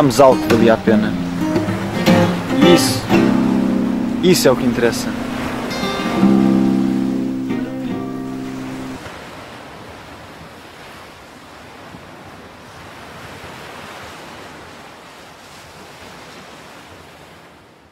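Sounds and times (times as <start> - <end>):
guitar music chord: 0.0 - 9.0
sea surf washing on beach: 0.0 - 17.9.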